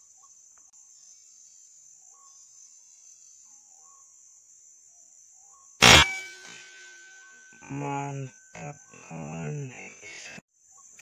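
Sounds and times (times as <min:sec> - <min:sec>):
air rifle shot: 0:05.8 - 0:06.8
steady high drone: 0:05.8 - 0:09.4.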